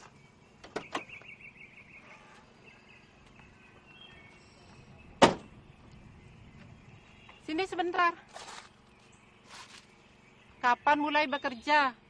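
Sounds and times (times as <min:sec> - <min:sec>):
faint outdoor chirping: 0:00.0 - 0:12.0
car door slamming shut: 0:05.2 - 0:05.5.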